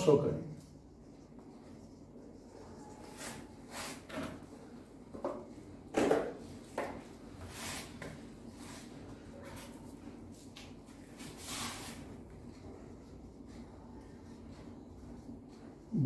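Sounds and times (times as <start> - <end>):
marker pen writing on whiteboard: 0.0 - 5.7, 12.0 - 15.9.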